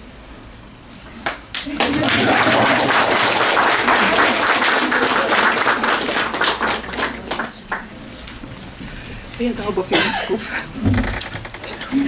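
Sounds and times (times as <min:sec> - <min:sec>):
audience applauding: 0:01.2 - 0:07.9.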